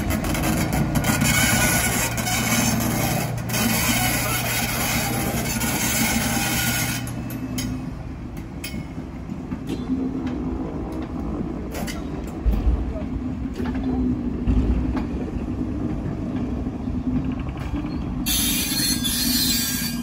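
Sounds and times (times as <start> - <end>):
diesel locomotive engine drone: 0.0 - 20.0
wheels and couplings knocking: 7.2 - 18.3.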